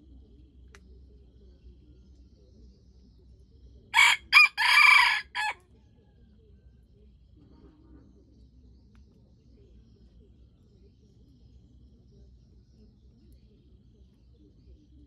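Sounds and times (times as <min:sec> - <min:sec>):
rooster crowing: 0:04.0 - 0:05.6.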